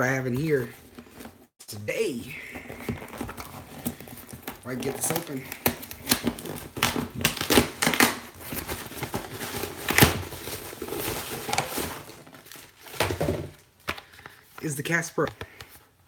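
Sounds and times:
cardboard box tearing and rustling: 2.5 - 13.6.

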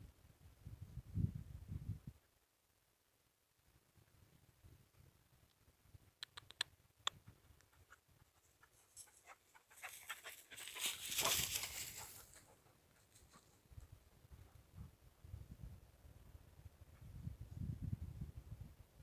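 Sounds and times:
rustling through dry brush: 8.4 - 13.9.

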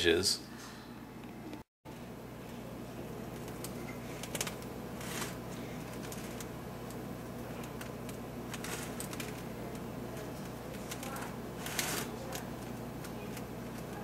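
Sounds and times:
steady low hum: 0.0 - 14.0
fingers crimping pie crust: 3.4 - 14.0.

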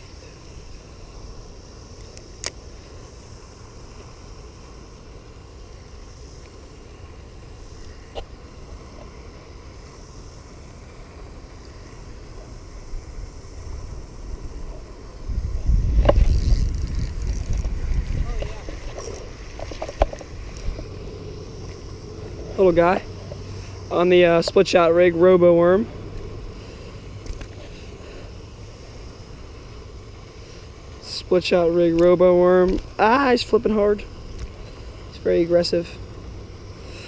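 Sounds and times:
wind rumbling on microphone: 12.2 - 27.6.

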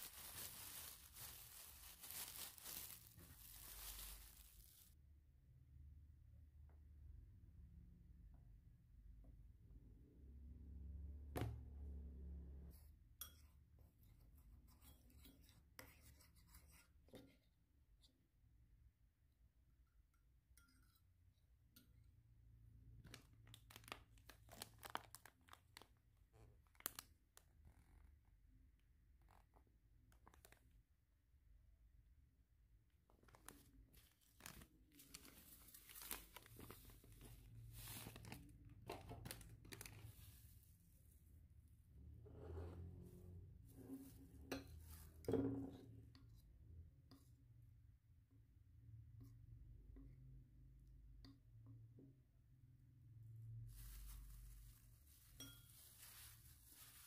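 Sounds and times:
crumbs pouring into metal bowl: 0.0 - 4.9
plastic packet crinkling: 0.0 - 5.0, 23.1 - 26.0, 26.6 - 27.1, 33.2 - 38.6, 39.2 - 40.4.

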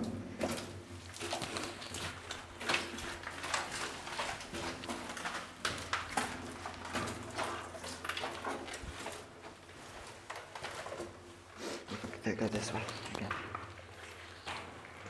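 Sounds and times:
footsteps on debris: 0.0 - 11.4.

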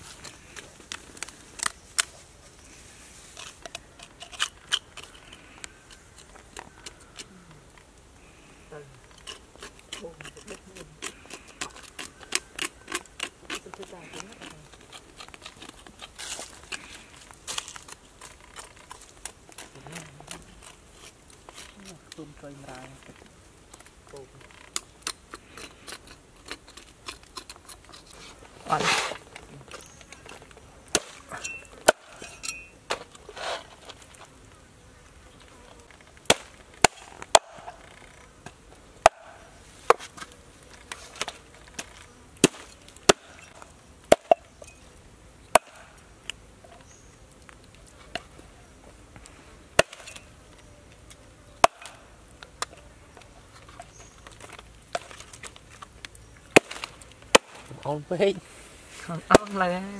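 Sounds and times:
cleaver chopping meat and bone: 9.2 - 16.8, 30.9 - 32.2, 36.3 - 37.8, 39.0 - 40.0, 42.4 - 43.4, 44.1 - 44.4, 45.5 - 45.9, 49.8 - 50.2, 51.6 - 52.0, 56.5 - 57.7.

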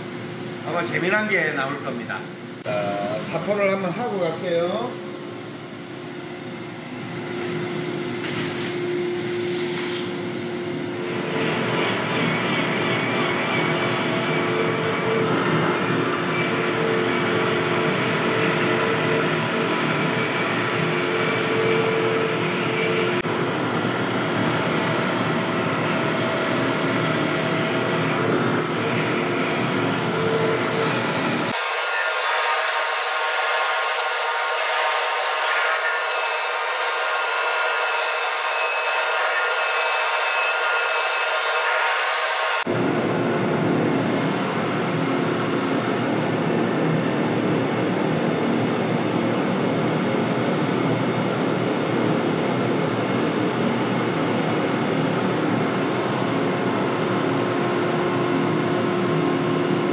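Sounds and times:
dust collector suction rush: 11.6 - 42.6
wood lathe humming: 15.9 - 42.6.

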